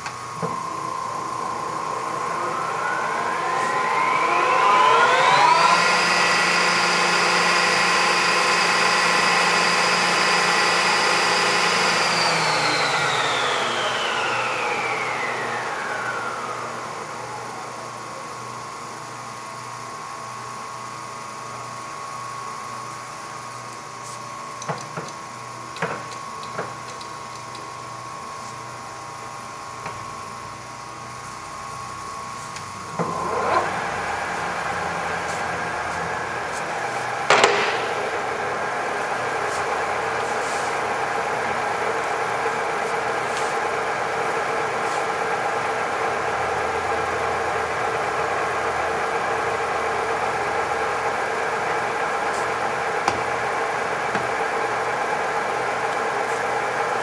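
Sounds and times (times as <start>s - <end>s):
spindle whine: 0.0s - 17.8s, 32.5s - 47.3s
lathe motor hum: 0.0s - 17.9s, 31.8s - 57.0s
sharp clunk: 37.3s - 38.1s.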